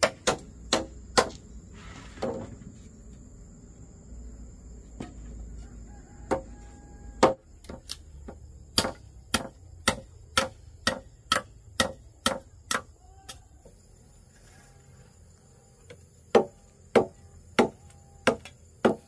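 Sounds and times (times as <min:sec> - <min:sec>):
hand tool striking wood: 0:00.0 - 0:01.4, 0:06.3 - 0:06.5, 0:07.2 - 0:13.4, 0:15.9 - 0:19.0.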